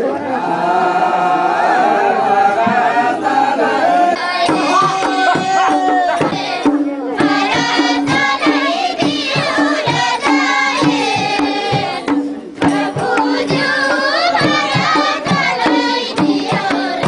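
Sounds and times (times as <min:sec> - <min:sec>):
group singing folk song: 0:00.0 - 0:17.0
hand drum beating: 0:04.2 - 0:17.0.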